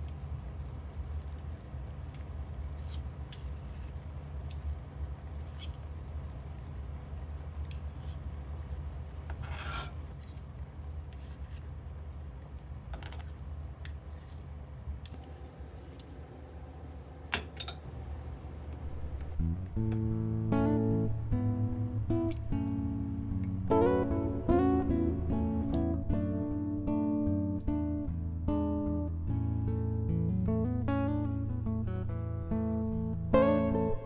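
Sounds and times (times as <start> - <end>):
broth simmering with small pops: 0.0 - 34.0
steady low hum: 0.0 - 34.0.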